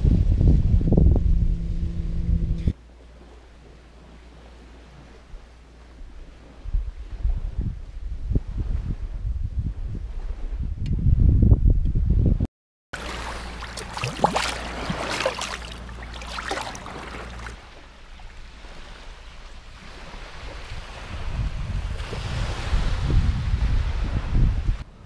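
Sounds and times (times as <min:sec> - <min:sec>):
wind buffeting microphone: 0:00.0 - 0:02.8, 0:05.0 - 0:12.5, 0:13.2 - 0:25.0
surf on a beach: 0:13.0 - 0:25.0.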